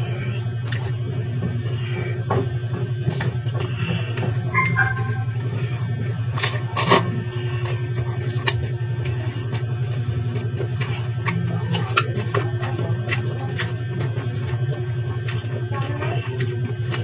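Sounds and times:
low mechanical hum: 0:00.0 - 0:17.0
chewing: 0:06.4 - 0:17.0.

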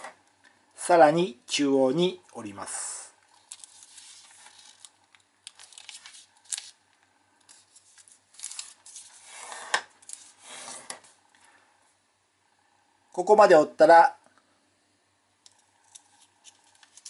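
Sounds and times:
paper rustling and crinkling: 0:03.3 - 0:06.8, 0:07.4 - 0:11.2, 0:15.8 - 0:17.0.

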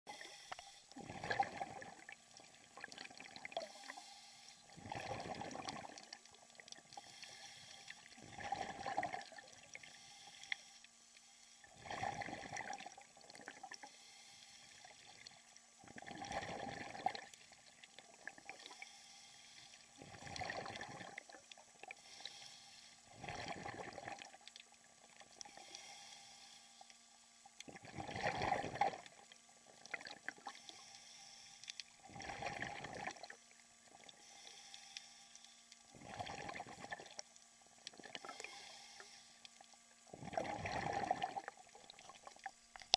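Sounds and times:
faint steady hum: 0:00.1 - 0:42.9
diver's exhaled bubbles rushing: 0:01.0 - 0:02.0, 0:04.8 - 0:06.0, 0:08.2 - 0:09.4, 0:11.8 - 0:12.9, 0:15.9 - 0:17.3, 0:27.8 - 0:29.0, 0:32.1 - 0:33.3, 0:36.0 - 0:37.1, 0:40.1 - 0:41.5.

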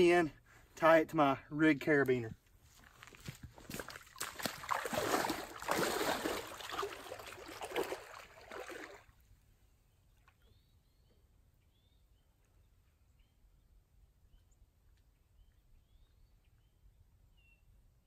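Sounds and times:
splashing footsteps in water: 0:02.7 - 0:09.2
faint bird chirps: 0:09.9 - 0:14.6.

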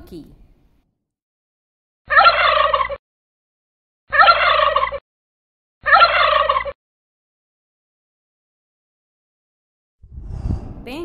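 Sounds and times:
turkey gobbling: 0:02.1 - 0:03.0, 0:04.1 - 0:05.0, 0:05.8 - 0:06.8.

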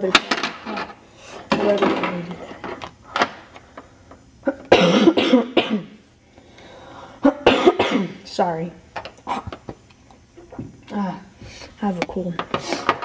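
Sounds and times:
boy coughing: 0:04.4 - 0:06.0, 0:07.2 - 0:08.2.

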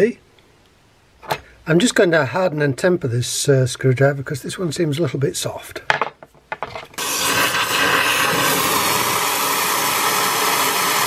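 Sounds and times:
hot metal sizzling in oil: 0:07.0 - 0:11.0.

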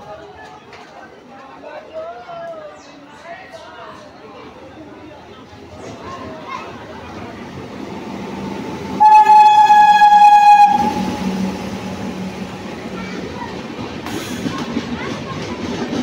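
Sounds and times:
train coaches rumbling on rails: 0:00.0 - 0:16.0
train horn blast: 0:09.0 - 0:11.6.

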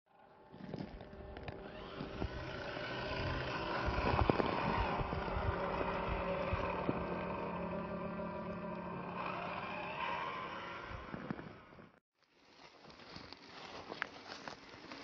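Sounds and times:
small electric motor whining: 0:00.4 - 0:11.9.

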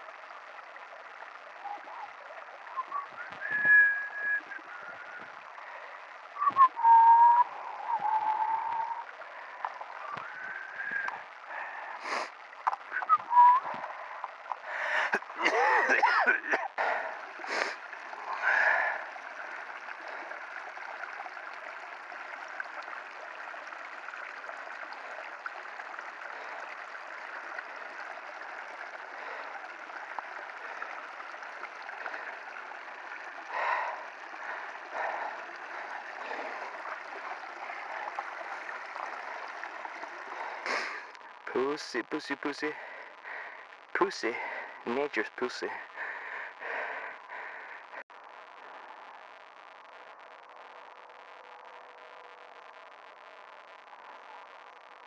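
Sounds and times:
stream trickling and gurgling: 0:00.0 - 0:55.0
short whistled calls: 0:02.7 - 0:05.3, 0:06.4 - 0:09.1, 0:10.0 - 0:11.2, 0:12.9 - 0:13.9.

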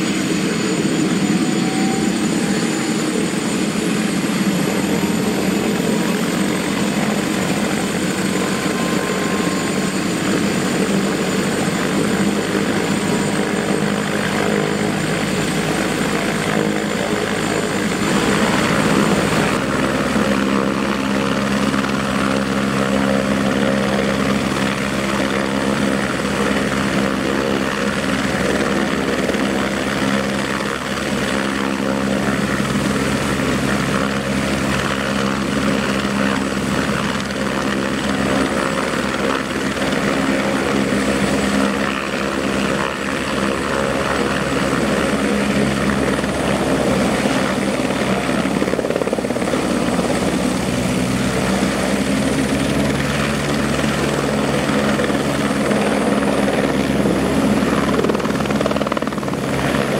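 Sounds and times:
helicopter engine and rotor: 0:00.0 - 0:59.9.

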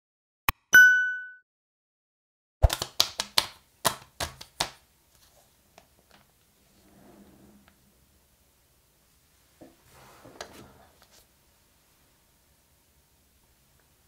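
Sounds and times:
soft rustle of packaging: 0:09.3 - 0:12.2.

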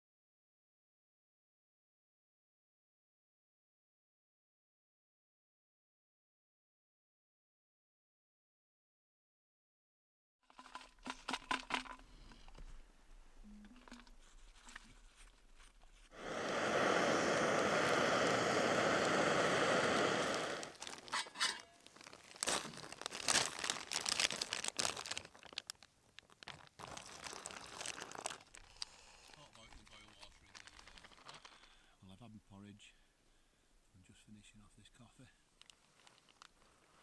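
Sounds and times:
drink stirred in a cup: 0:10.5 - 0:12.4
plastic pouch crinkling: 0:10.5 - 0:12.6, 0:20.2 - 0:31.8, 0:35.6 - 0:37.0
steady rushing hiss: 0:15.9 - 0:21.1.

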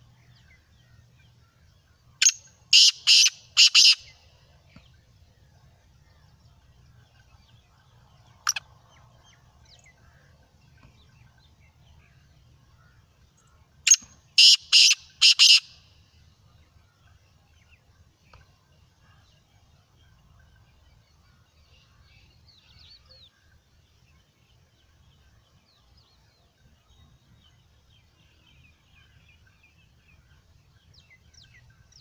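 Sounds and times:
francolin calling: 0:02.2 - 0:04.2, 0:13.9 - 0:15.9.

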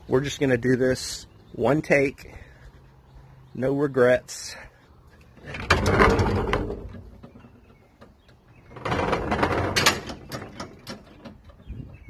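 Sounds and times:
wooden gate latch rattling: 0:05.4 - 0:12.0.

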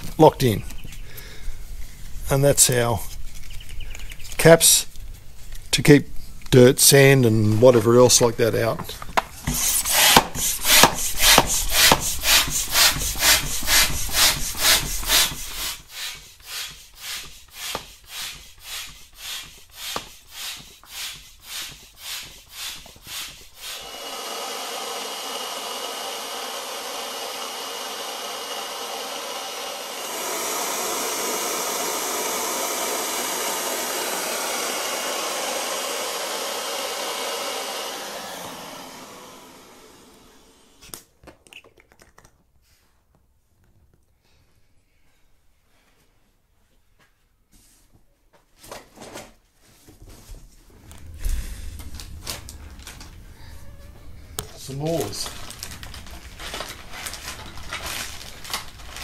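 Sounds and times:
electric inflator whining: 0:09.1 - 0:41.0
rhythmic air pumping strokes: 0:09.4 - 0:40.9.

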